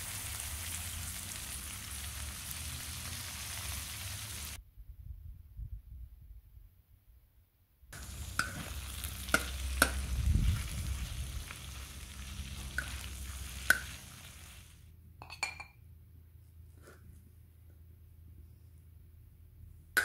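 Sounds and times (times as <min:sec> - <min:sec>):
meat sizzling on griddle: 0:00.0 - 0:04.6, 0:08.0 - 0:14.8.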